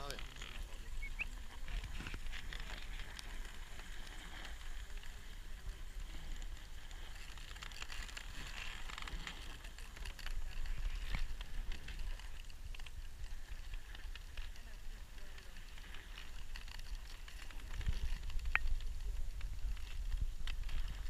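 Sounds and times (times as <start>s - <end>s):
crackles and clicks: 0.0s - 21.0s.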